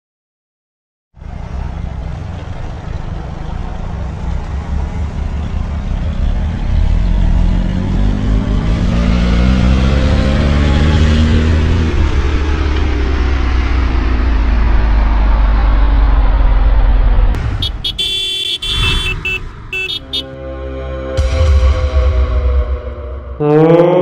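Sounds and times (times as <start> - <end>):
motorcycle engines running: 1.2 - 15.6.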